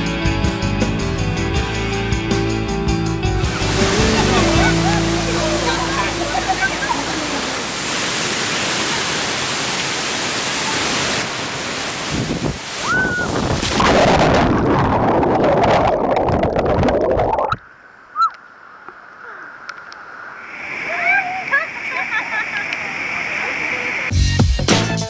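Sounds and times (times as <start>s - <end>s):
waterfall rushing: 3.4s - 13.9s, 20.5s - 24.1s.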